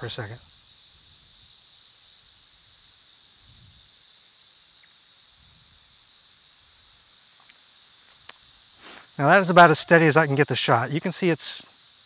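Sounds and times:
insects chorus: 0.0 - 12.0
wind rumble on microphone: 3.4 - 3.8.

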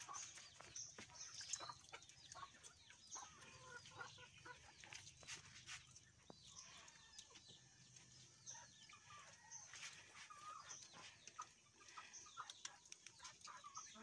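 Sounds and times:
chickens clucking and chirping: 0.0 - 14.0.

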